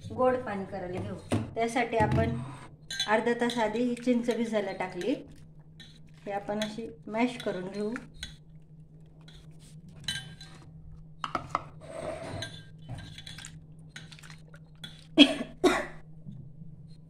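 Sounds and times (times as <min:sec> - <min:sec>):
wet squishing by hand: 0:13.2 - 0:15.2.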